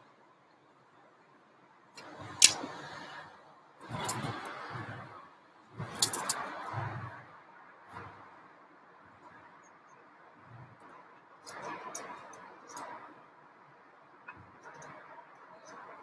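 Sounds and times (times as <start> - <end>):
sharp clicks: 2.0 - 2.7.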